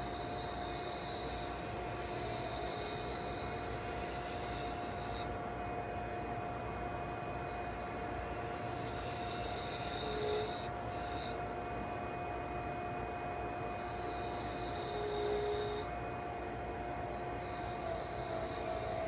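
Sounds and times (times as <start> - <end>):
wood lathe whining: 0.0 - 5.3, 8.2 - 11.4, 13.7 - 15.9, 17.1 - 19.0
turning tool cutting wood: 8.4 - 11.3.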